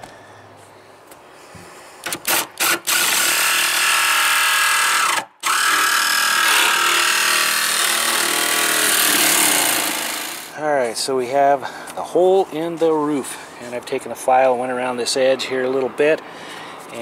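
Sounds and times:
jigsaw cutting sheet metal: 0:02.1 - 0:10.5.

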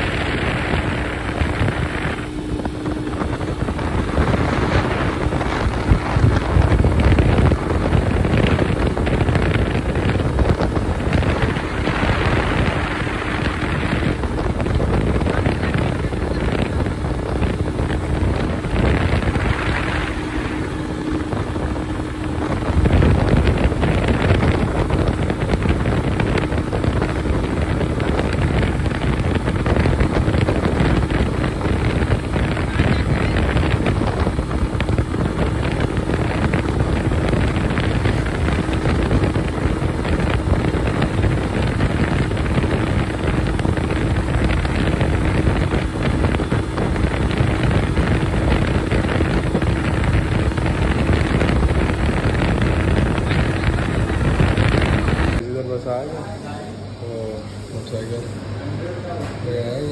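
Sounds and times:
motorcycle engine running: 0:00.0 - 0:55.4
wind buffeting microphone: 0:00.0 - 0:55.4.

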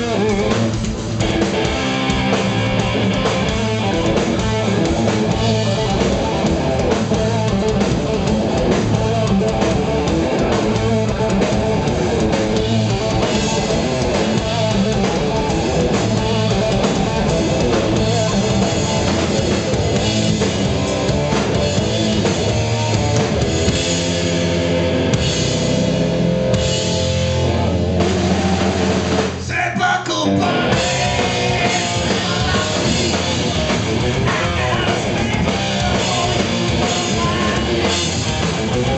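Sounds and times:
bass guitar: 0:00.0 - 0:38.9
distorted electric guitars: 0:00.0 - 0:38.9
drum kit: 0:00.0 - 0:38.9.

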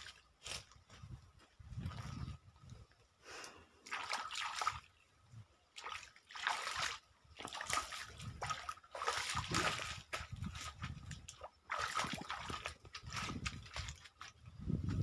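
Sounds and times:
hands splashing in water: 0:03.8 - 0:04.9, 0:05.8 - 0:14.3.

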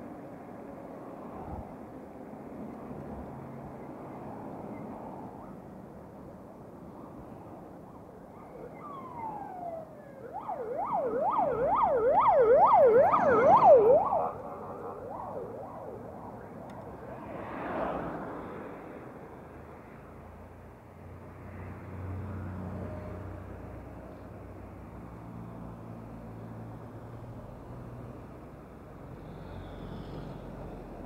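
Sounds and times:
siren wailing and yelping: 0:08.3 - 0:17.0.

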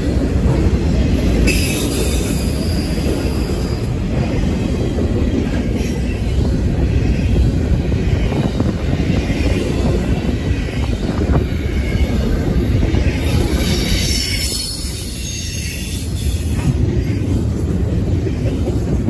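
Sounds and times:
train wheels rumbling on rail: 0:00.0 - 0:19.0
high wheel squeal: 0:07.0 - 0:16.7.

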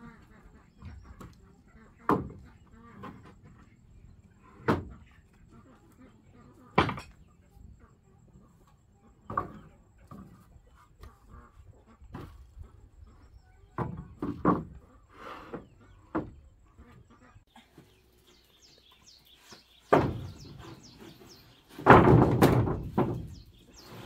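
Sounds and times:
boards clattering and scraping: 0:00.7 - 0:05.6, 0:06.6 - 0:07.3, 0:09.1 - 0:12.8, 0:13.8 - 0:16.9, 0:18.7 - 0:24.0
wooden boards knocking together: 0:02.1 - 0:03.3, 0:04.6 - 0:05.0, 0:06.8 - 0:07.2, 0:13.8 - 0:14.8, 0:19.8 - 0:23.6.

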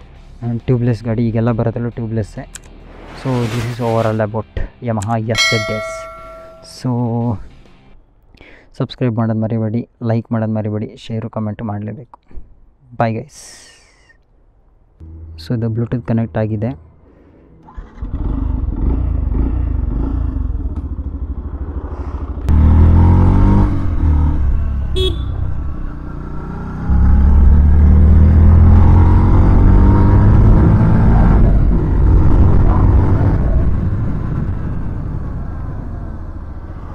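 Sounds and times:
motorcycle engine accelerating: 0:17.7 - 0:36.9.

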